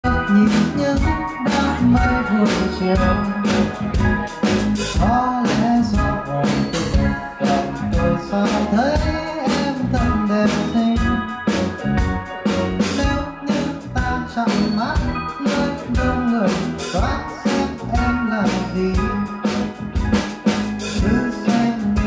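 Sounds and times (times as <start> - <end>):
man singing into microphone: 0.0 - 3.6, 5.0 - 11.4, 12.9 - 19.5, 21.0 - 22.0
drum kit beat: 0.0 - 22.0
electric guitar and bass: 0.0 - 22.0.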